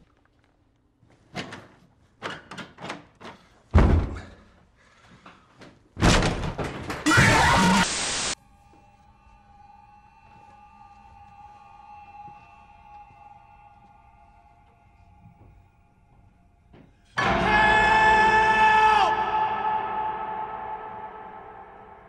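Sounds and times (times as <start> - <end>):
burst of harsh noise: 7.1 - 8.4
eerie held tone: 17.2 - 22.0.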